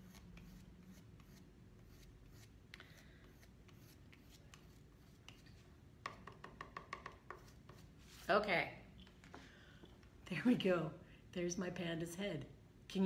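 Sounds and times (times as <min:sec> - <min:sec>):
fork tapping on paper: 0:06.0 - 0:07.8.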